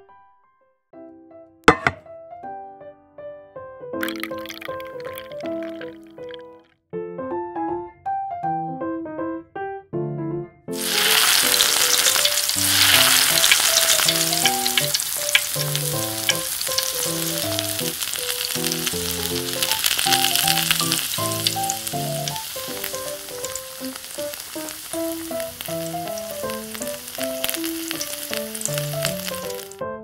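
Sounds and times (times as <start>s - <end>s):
fish deep-frying in hot oil: 4.0s - 6.4s, 10.8s - 29.8s.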